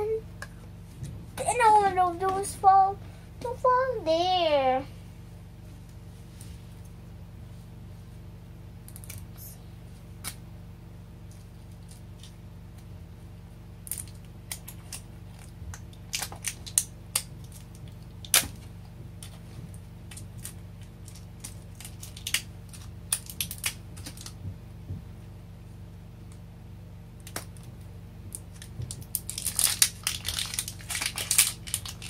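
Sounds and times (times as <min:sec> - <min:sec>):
plastic crinkling: 0:20.0 - 0:24.4, 0:28.3 - 0:32.0.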